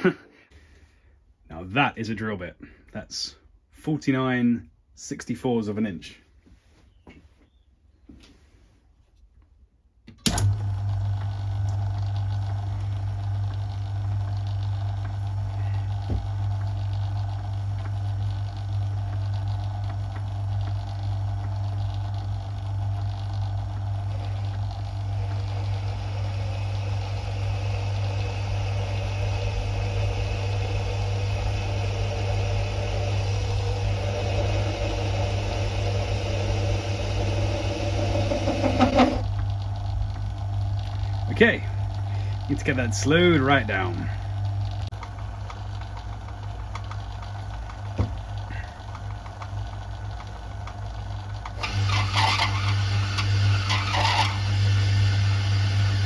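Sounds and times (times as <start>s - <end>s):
drill boring into steel: 10.4s - 47.8s, 51.0s - 56.0s
lathe motor humming: 10.4s - 56.0s.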